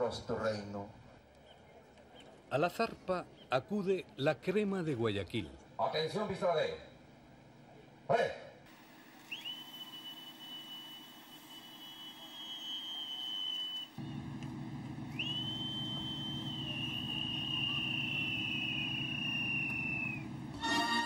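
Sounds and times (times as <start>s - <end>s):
low steady hum: 5.3s - 21.0s.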